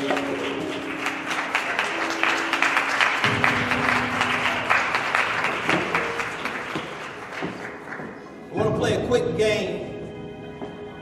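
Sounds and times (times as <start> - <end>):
audience applauding: 0.0 - 8.5
music with long held notes: 0.0 - 11.0.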